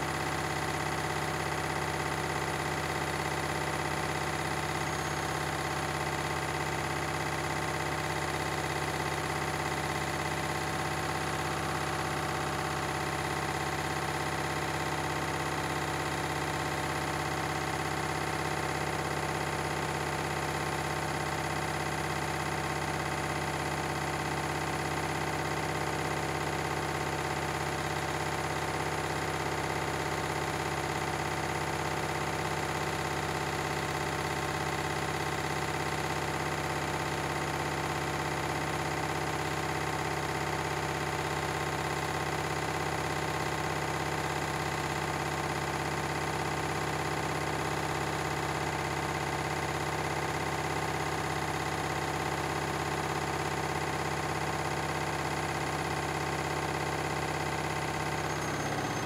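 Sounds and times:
washing machine spinning: 55.6s - 59.0s.

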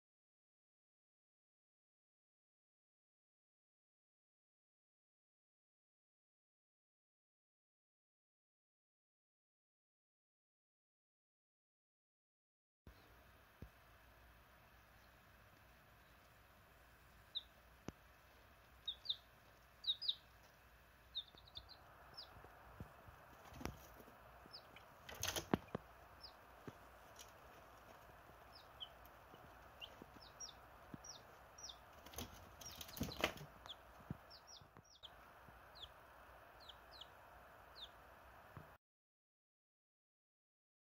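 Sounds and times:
chicks peeping: 12.9s - 38.8s
wings flapping: 23.3s - 25.9s, 31.9s - 34.2s.

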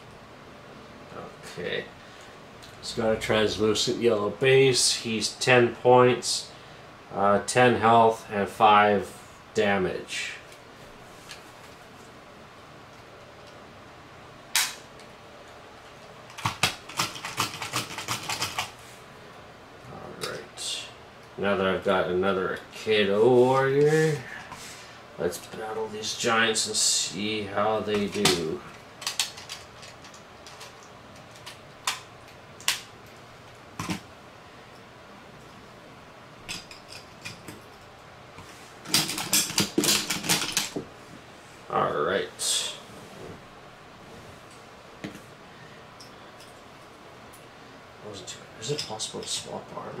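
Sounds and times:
rapid plastic clacking: 16.3s - 18.7s.

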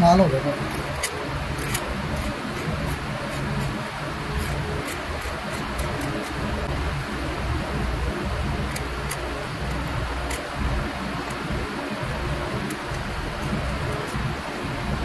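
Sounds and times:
background rumble and hiss: 0.0s - 15.0s
metal tool scratching lacquer: 4.4s - 6.5s.

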